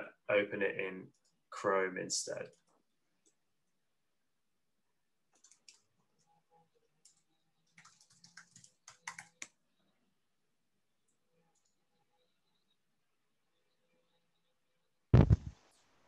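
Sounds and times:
keyboard typing: 5.3 - 6.3, 7.0 - 9.7.

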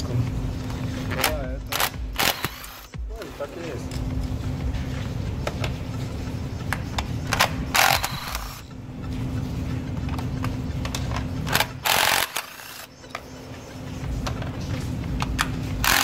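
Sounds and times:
steady low hum: 0.0 - 16.0
ratchet wrench clicking: 1.7 - 3.0, 11.5 - 12.9.

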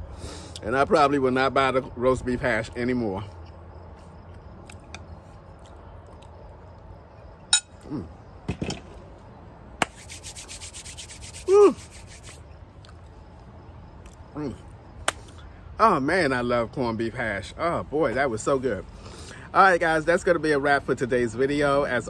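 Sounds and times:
chewing mouth sounds: 5.6 - 6.4
palms rubbing together: 9.8 - 12.5.

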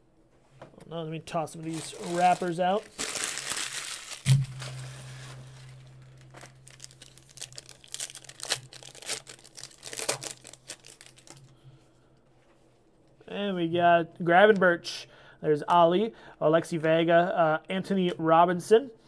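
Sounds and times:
foil wrappers crinkling: 1.5 - 11.5
foil pack tearing: 1.6 - 11.5
thump: 4.3 - 4.9
low hum: 4.3 - 8.3.

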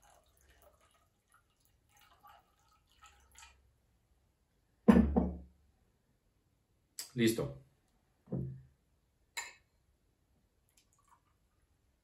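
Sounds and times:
water trickling into glass cup: 0.0 - 3.6, 10.7 - 11.6
glass jug knocking on wooden table: 4.9 - 5.5, 8.3 - 8.6.

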